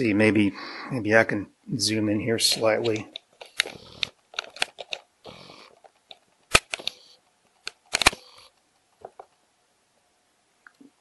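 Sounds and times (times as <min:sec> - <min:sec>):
plastic valve clicks and rustles: 0:02.5 - 0:05.1, 0:05.7 - 0:08.3.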